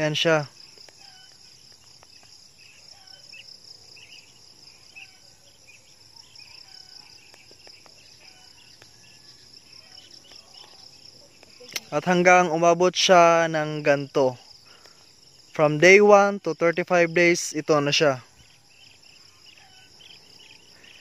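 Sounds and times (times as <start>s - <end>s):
faint chirps: 0.0s - 12.2s, 17.0s - 21.0s
insects chirring: 0.0s - 21.0s.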